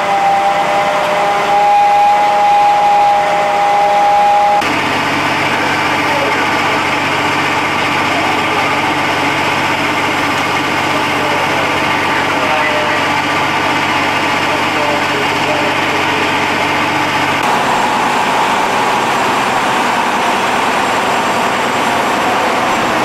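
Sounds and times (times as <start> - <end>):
engine running with dense rumble: 0.0 - 23.0.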